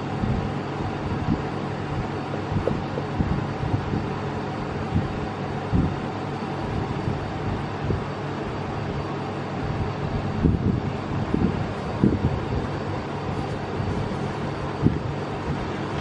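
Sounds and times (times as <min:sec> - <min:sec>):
air conditioner hum: 0:00.0 - 0:16.0.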